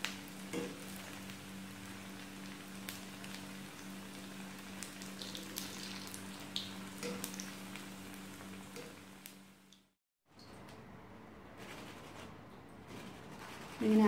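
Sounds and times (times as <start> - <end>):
dumplings sizzling in hot oil: 0.0 - 10.0.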